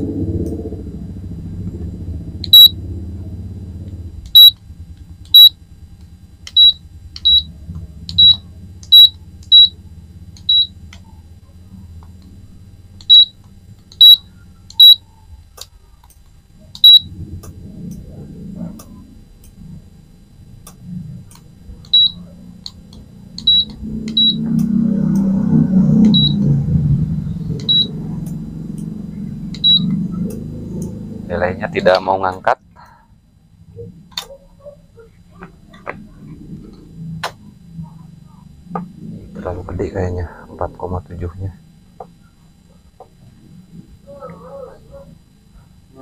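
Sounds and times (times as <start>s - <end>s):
short high beeps: 2.5s - 2.8s, 4.4s - 4.6s, 8.2s - 9.8s, 13.1s - 13.3s, 14.0s - 14.2s, 14.8s - 15.0s, 16.8s - 17.1s, 27.6s - 27.9s, 29.6s - 29.9s.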